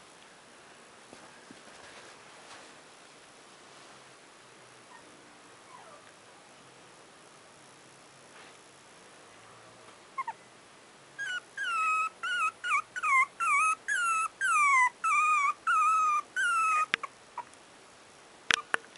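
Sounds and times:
puppy crying: 10.2 - 10.4, 11.2 - 17.5.

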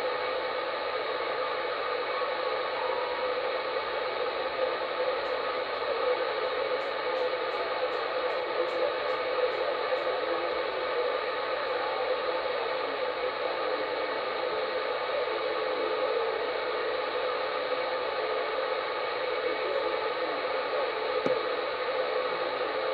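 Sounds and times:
radio static hiss: 0.0 - 22.9.

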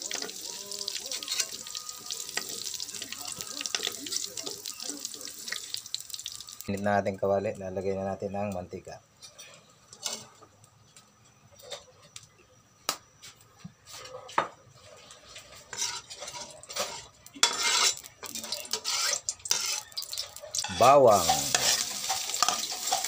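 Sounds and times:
spoon scraping pan: 0.0 - 4.8, 14.8 - 23.0.

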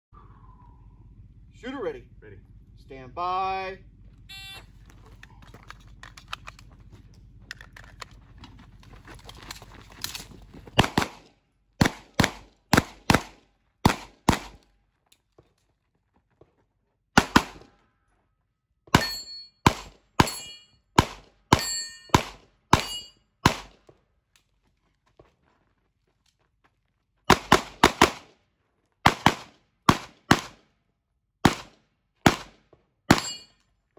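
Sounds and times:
pistol shots: 10.7 - 14.6, 17.2 - 17.7, 18.9 - 23.8, 27.3 - 28.3, 29.0 - 30.7, 31.4 - 33.5
metallic clang of steel targets: 18.9 - 20.8, 21.5 - 23.2, 33.1 - 33.6.

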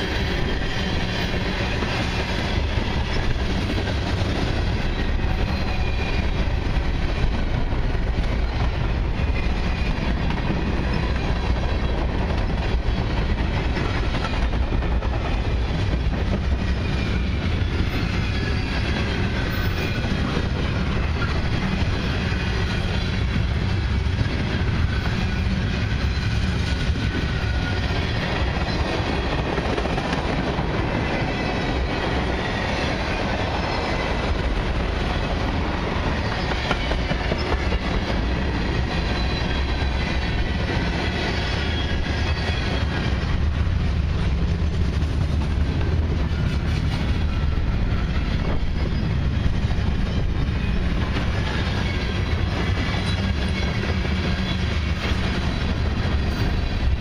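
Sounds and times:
freight train wheels rumbling: 0.0 - 57.0
high wheel squeal: 4.7 - 6.4, 16.6 - 23.0, 38.9 - 40.5.

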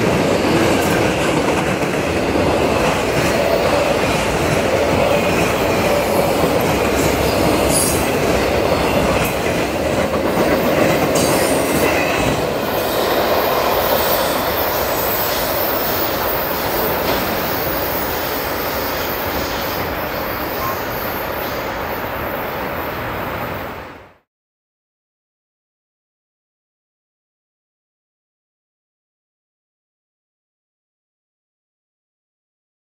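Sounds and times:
freight train wheels rumbling: 0.0 - 23.9.

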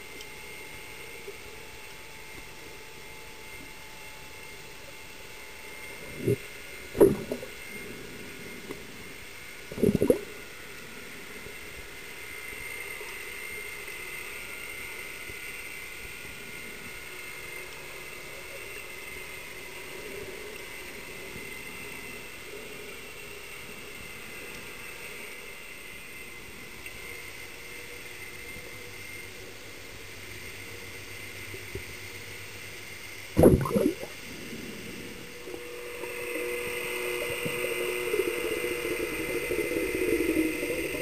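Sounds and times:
faint high whine: 0.0 - 41.0
muffled underwater whirr: 0.0 - 41.0
dull underwater thumps: 7.0 - 7.5, 33.4 - 34.1.

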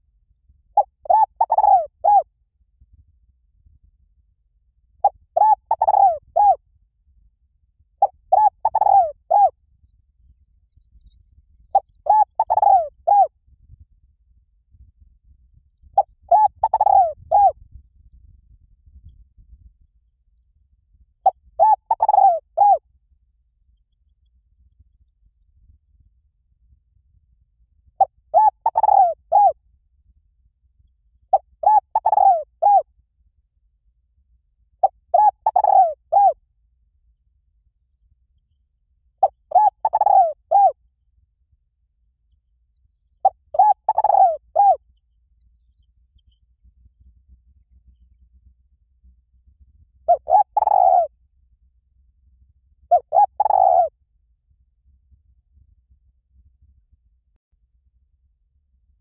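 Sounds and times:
faint low rumble: 0.0 - 59.0
dove cooing: 0.8 - 2.2, 5.0 - 6.6, 8.0 - 9.5, 11.8 - 13.3, 16.0 - 17.6, 21.6 - 22.8, 28.0 - 29.6, 31.3 - 32.8, 34.8 - 36.4, 39.2 - 40.8, 43.2 - 44.8, 50.1 - 51.1, 52.9 - 53.9.

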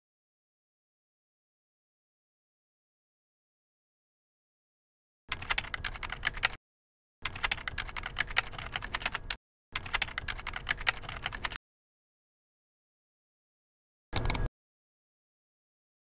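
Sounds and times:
keyboard typing: 5.3 - 6.6, 7.2 - 11.6, 14.2 - 14.5.

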